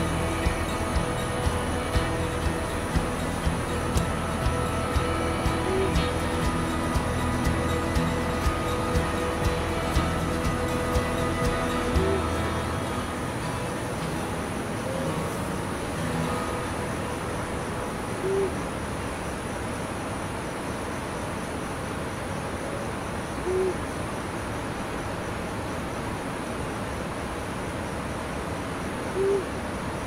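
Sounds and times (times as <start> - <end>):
background hiss: 0.0 - 30.0
owl hooting: 3.9 - 6.3, 11.9 - 12.4, 18.2 - 18.8, 23.4 - 23.9, 29.1 - 29.6.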